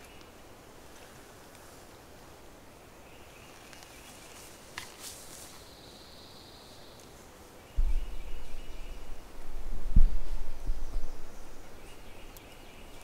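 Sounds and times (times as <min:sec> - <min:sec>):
loud low rumble on microphone: 0:07.8 - 0:11.8.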